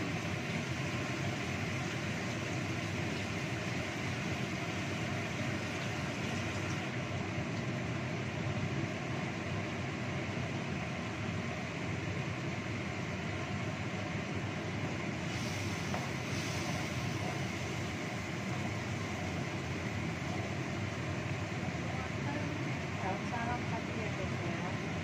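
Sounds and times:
cooker hood fan whirring: 0.0 - 25.0
paste sizzling in hot oil: 15.1 - 20.8.

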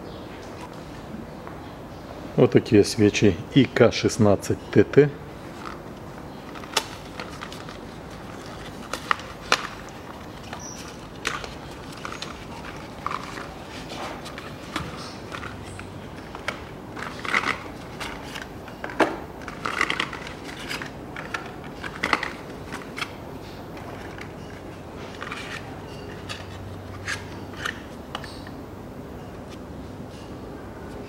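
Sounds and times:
packaging crinkling: 6.4 - 18.5, 19.4 - 23.2.

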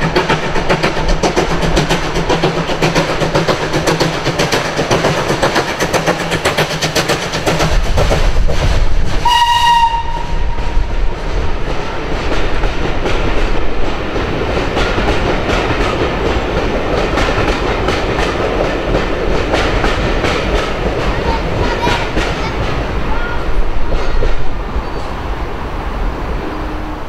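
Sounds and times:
wheels clicking over rail joints: 0.0 - 25.1
steam train whistle blast: 9.2 - 10.7.

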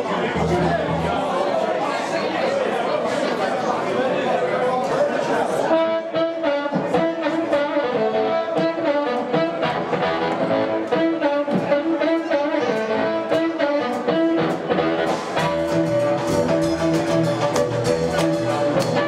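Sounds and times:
double bass: 0.4 - 1.2, 15.2 - 19.0
electric guitar: 5.7 - 19.0
amplified blues harmonica: 5.8 - 19.0
drums keeping a steady beat: 6.7 - 19.0.

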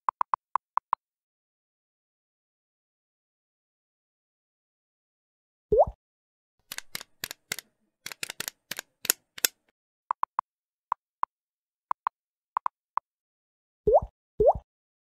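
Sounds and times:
rapid sharp clicks: 6.7 - 10.4
short typing ticks: 6.7 - 10.4.

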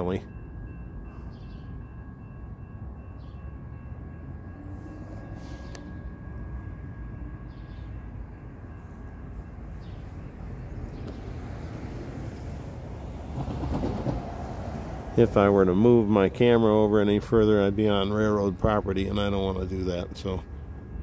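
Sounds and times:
faint high ringing: 0.0 - 11.1
distant freight train rumble: 0.0 - 21.0.

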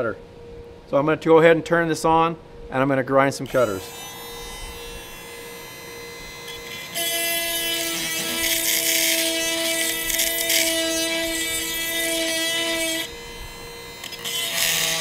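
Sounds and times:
grinder motor whine: 3.5 - 15.0.

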